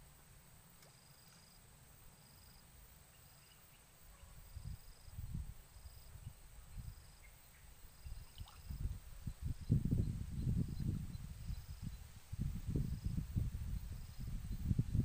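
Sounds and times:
insects chirping: 0.6s - 15.0s
wind rumbling on microphone: 4.2s - 15.0s.

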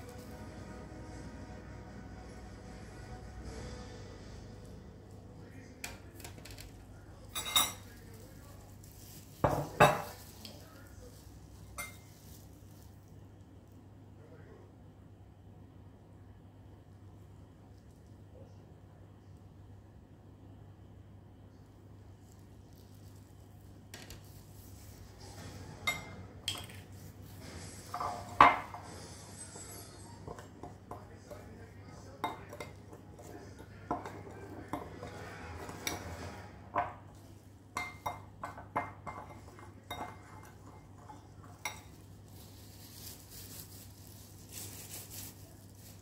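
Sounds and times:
metal spoon clinking in bowl: 37.8s - 42.0s.

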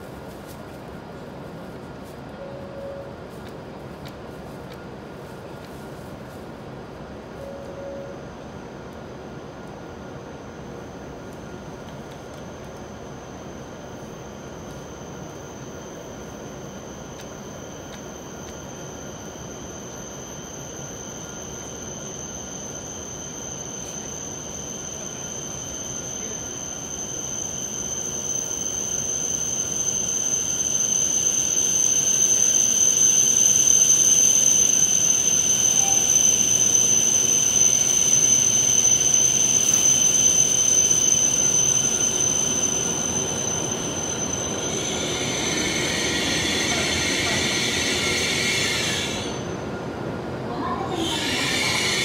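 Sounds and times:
high-pitched whine: 0.0s - 52.0s
train rumbling past: 0.0s - 52.0s
braking wheels squealing: 13.3s - 49.7s, 50.6s - 52.0s.

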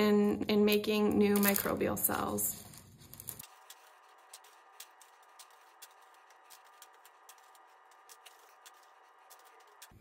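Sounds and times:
candies clicking in plastic: 1.3s - 1.8s.

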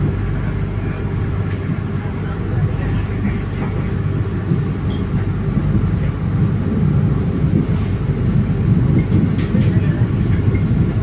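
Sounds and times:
vehicle interior rumble: 0.0s - 11.0s.

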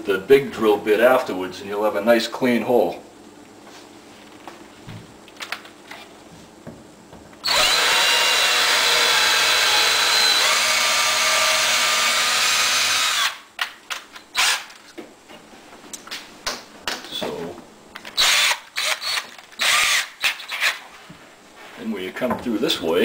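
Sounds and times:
cordless drill boring wood: 7.4s - 13.4s, 14.4s - 14.7s, 18.2s - 20.8s.

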